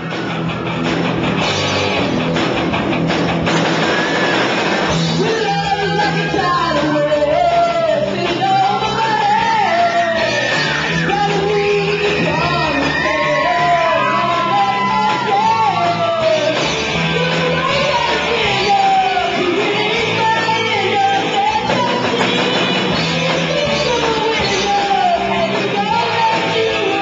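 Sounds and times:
drum kit with crashing cymbals: 0:00.0 - 0:27.0
electric guitar: 0:00.0 - 0:27.0
woman singing into a microphone: 0:05.2 - 0:10.4, 0:11.0 - 0:16.5, 0:17.1 - 0:27.0.

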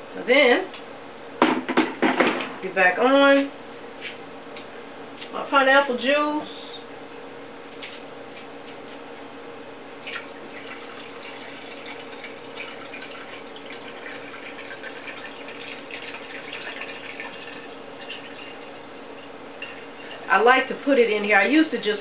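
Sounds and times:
juice pouring into blender jar: 0:10.2 - 0:18.8.

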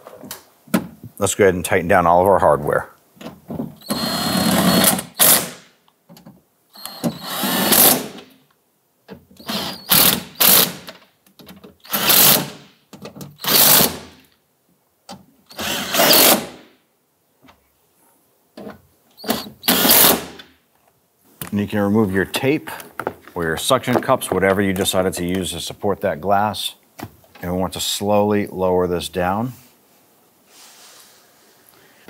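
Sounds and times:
impact driver bursts: 0:03.8 - 0:05.7, 0:06.8 - 0:08.3, 0:09.4 - 0:10.9, 0:11.8 - 0:12.7, 0:13.4 - 0:14.2, 0:15.5 - 0:16.7, 0:19.2 - 0:20.5.

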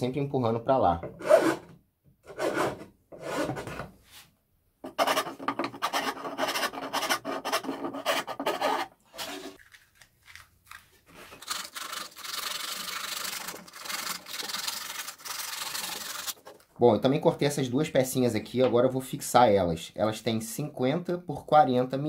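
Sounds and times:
file rasping on wood: 0:02.3 - 0:03.7, 0:04.9 - 0:09.5.

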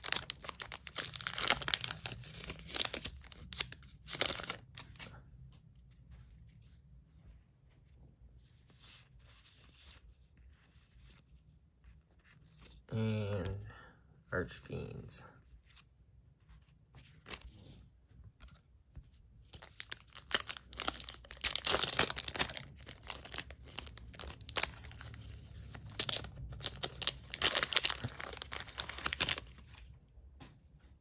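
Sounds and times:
wrappers tearing and crinkling: 0:00.0 - 0:05.0, 0:19.6 - 0:29.8.

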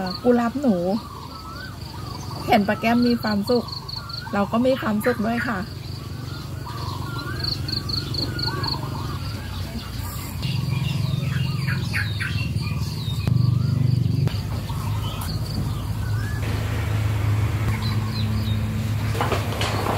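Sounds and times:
small birds chirping: 0:00.0 - 0:19.9
steady low rumble: 0:10.3 - 0:19.9.

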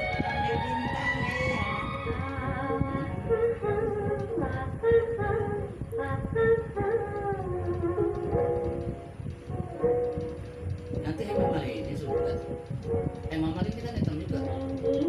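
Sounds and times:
elderly woman singing: 0:00.0 - 0:09.0, 0:13.3 - 0:15.0.

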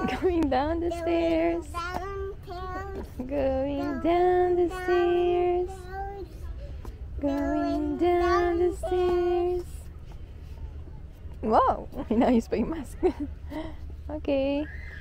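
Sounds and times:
young child singing: 0:01.5 - 0:03.2, 0:03.8 - 0:06.5, 0:07.2 - 0:09.6.

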